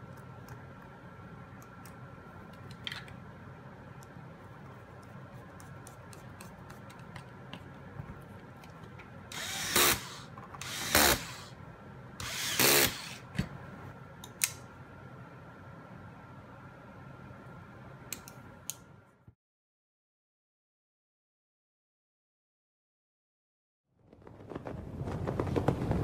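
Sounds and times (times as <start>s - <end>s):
electric screwdriver whirring: 9.3s - 11.5s, 12.2s - 13.3s.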